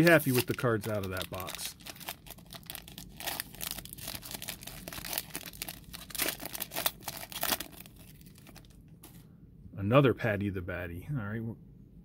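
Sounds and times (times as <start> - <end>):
foil wrapper tearing and crinkling: 0.0 - 8.7.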